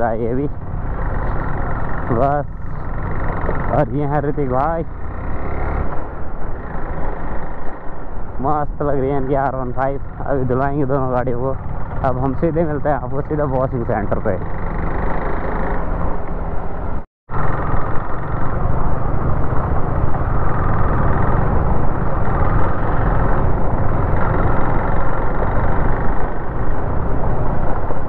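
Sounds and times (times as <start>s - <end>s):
motorcycle engine running: 0.0s - 28.0s
wind rushing over microphone: 14.8s - 28.0s.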